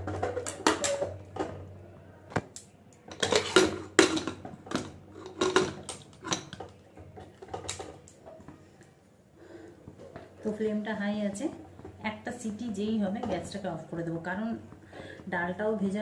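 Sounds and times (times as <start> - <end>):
metal lid clanking and scraping: 0.0 - 1.6, 3.1 - 8.4.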